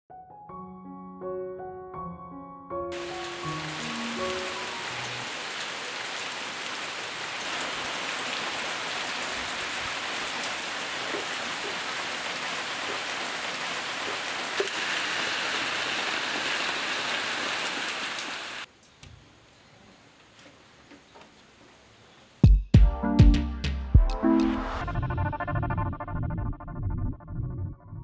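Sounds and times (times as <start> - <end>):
steady rain falling: 2.9 - 18.7
water drips: 10.3 - 14.8.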